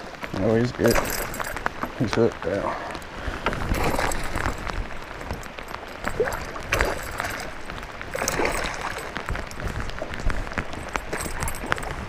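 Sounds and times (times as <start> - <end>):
rain falling: 0.0 - 12.0
fish splashing in water: 3.6 - 12.0.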